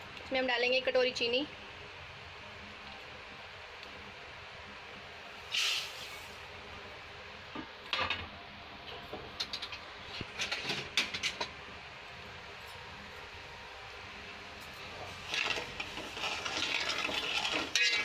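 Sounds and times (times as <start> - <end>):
steel utensils clinking on a pot: 15.3 - 18.0.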